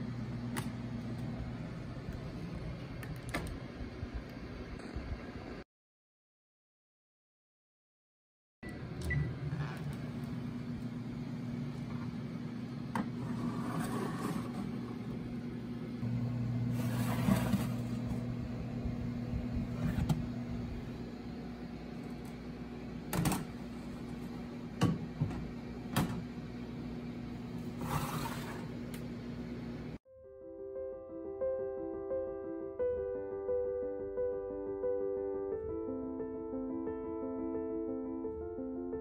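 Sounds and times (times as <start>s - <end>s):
microwave oven humming: 0.0s - 5.6s, 8.6s - 30.0s
tray scrapes: 13.2s - 15.0s, 16.7s - 18.1s, 27.7s - 28.8s.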